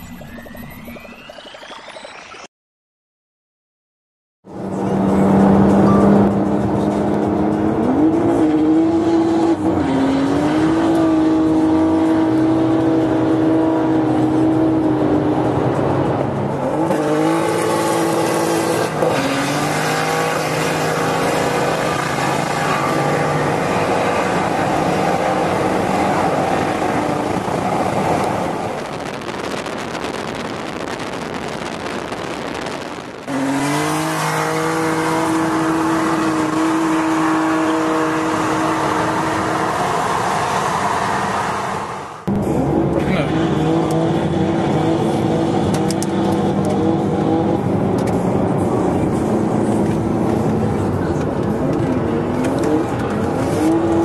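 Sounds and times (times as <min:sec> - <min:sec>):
car engine at high revs: 0:04.5 - 0:54.0.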